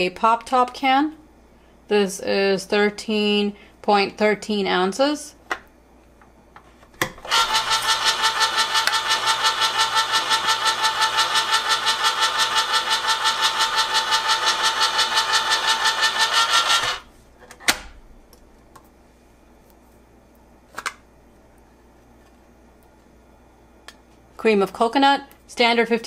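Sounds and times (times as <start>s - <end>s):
electric can opener running: 7.1s - 17.1s.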